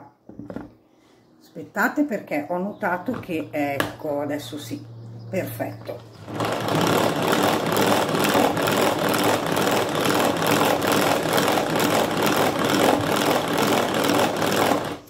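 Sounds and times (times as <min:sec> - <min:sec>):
hand-cranked whisk whirring: 0:06.0 - 0:15.0.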